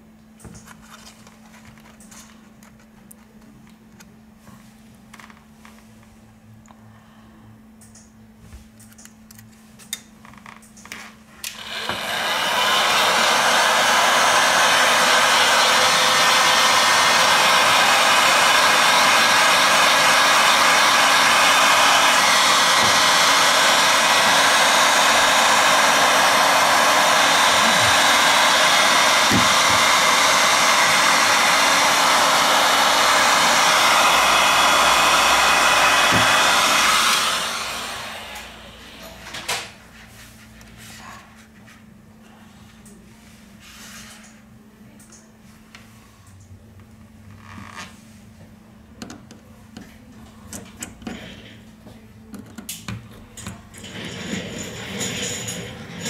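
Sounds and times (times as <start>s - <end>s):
heat gun blowing air: 11.4s - 39.6s.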